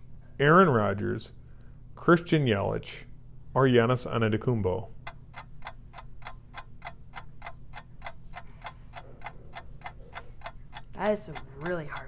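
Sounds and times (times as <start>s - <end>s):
faint low hum: 0.0s - 12.0s
clock ticking: 5.0s - 12.0s.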